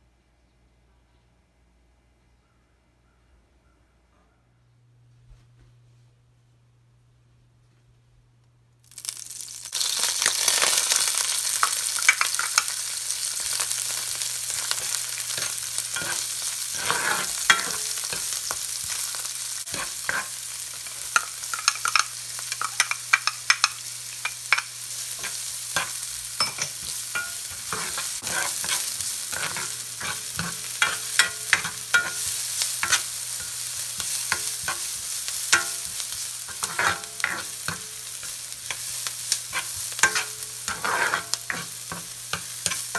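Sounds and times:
onion frying in oil: 0:08.8 - 0:42.9
plastic spoon scraping a pan: 0:15.4 - 0:17.4.

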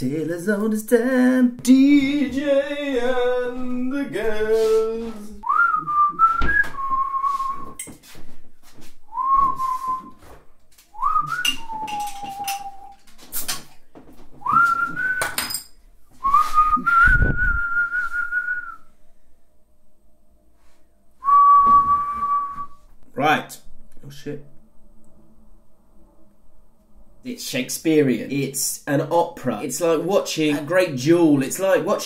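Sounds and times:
man whistling a tune: 0:05.4 - 0:07.8, 0:09.1 - 0:10.2, 0:10.9 - 0:13.0, 0:14.4 - 0:15.6, 0:16.2 - 0:18.9, 0:21.2 - 0:22.8
low thump: 0:06.4 - 0:06.9.

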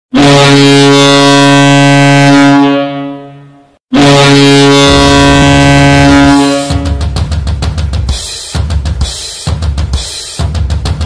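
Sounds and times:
goal horn blasts: 0:00.1 - 0:07.2
music with heavy drum beat: 0:04.9 - 0:11.0.

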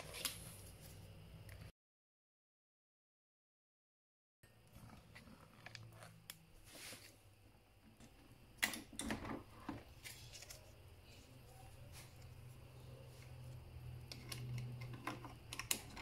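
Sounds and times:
faint low hum: 0:04.4 - 0:16.0.

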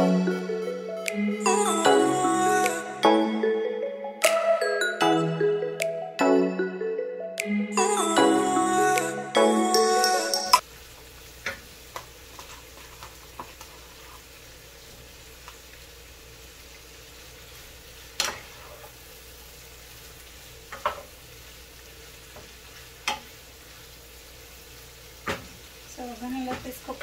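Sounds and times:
vegetables sizzling in a pan: 0:10.6 - 0:27.0.

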